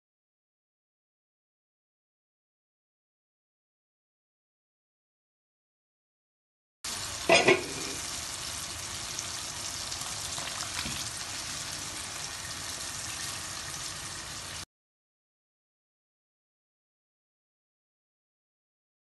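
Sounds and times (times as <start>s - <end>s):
water boiling in a pot: 6.9s - 14.6s
pan sizzling: 6.9s - 14.7s.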